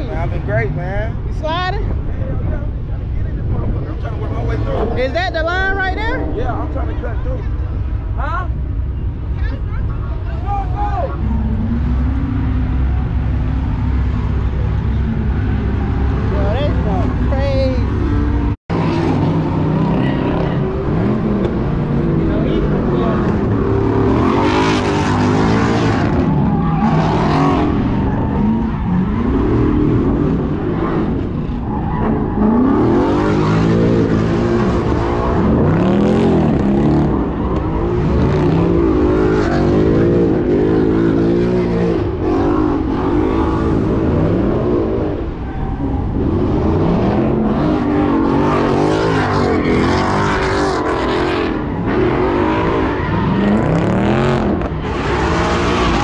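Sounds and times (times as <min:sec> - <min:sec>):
car engines revving hard: 0:00.0 - 0:56.0.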